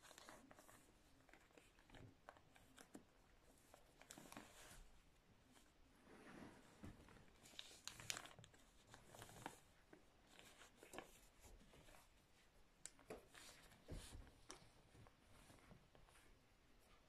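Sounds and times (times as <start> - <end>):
paper rustling and crinkling: 0.0 - 5.7, 6.5 - 12.2.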